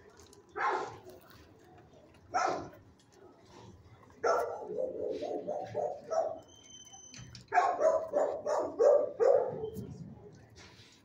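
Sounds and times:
dogs barking: 0.6s - 1.0s, 2.3s - 2.8s, 4.2s - 6.5s, 7.5s - 9.8s.

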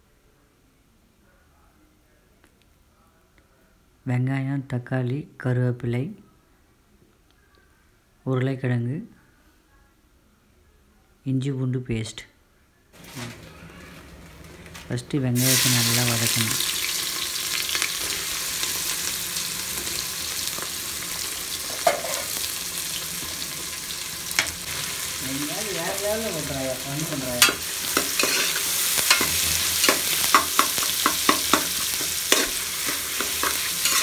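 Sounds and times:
onions sizzling in oil: 13.0s - 34.0s
ladle scraping a pot: 27.4s - 34.0s.

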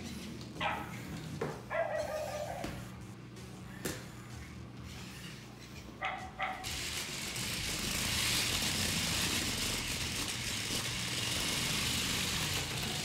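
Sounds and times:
wheels rolling on wood: 6.4s - 13.0s
robot toy motors whirring: 6.6s - 13.0s.

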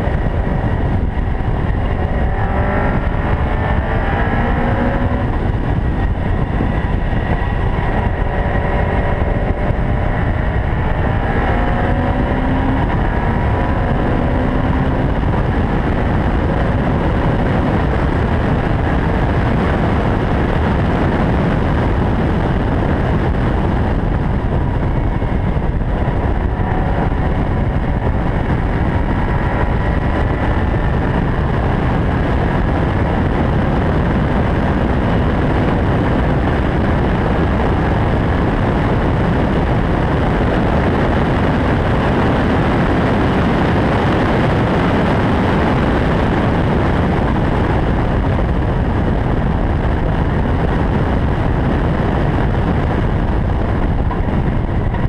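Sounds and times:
car engine revving through gears: 0.0s - 19.5s, 23.2s - 33.9s
loud steady rushing noise: 0.0s - 55.0s.

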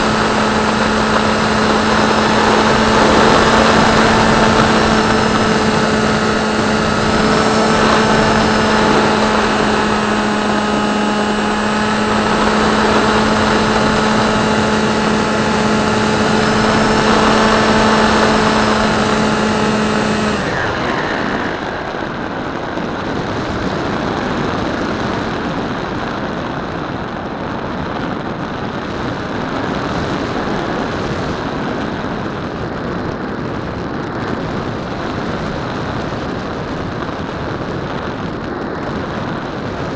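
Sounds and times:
electric motor and propeller whine: 0.0s - 27.3s
wind rush: 0.0s - 39.9s.

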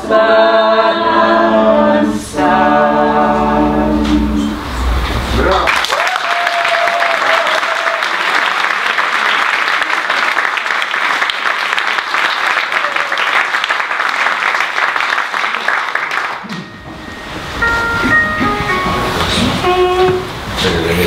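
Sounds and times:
audience applauding: 5.4s - 16.8s.

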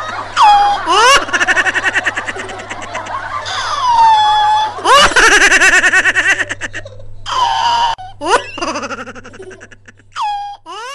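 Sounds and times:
child giggling and squealing: 6.4s - 10.9s.

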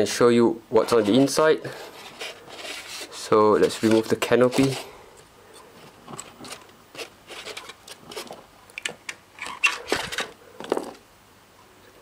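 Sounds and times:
plastic and foam rubbing: 0.8s - 5.0s, 5.8s - 8.4s.

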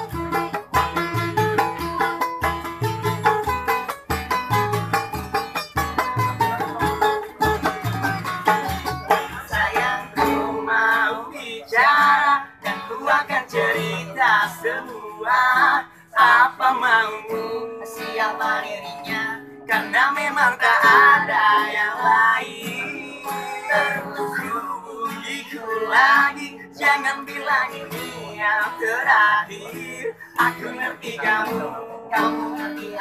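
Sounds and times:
hand drum beating: 0.0s - 10.5s
acoustic guitars strummed: 0.0s - 33.0s
men singing: 6.2s - 33.0s.

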